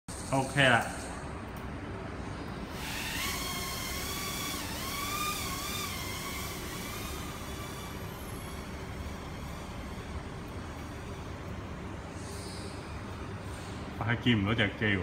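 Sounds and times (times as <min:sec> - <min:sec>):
quadcopter propeller whine: 0:02.7 - 0:10.5.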